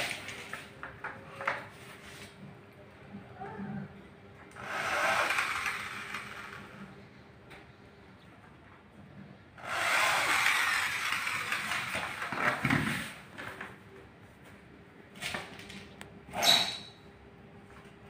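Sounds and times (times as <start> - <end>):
electric drill drilling into plastic: 4.6 - 6.8, 9.6 - 12.6.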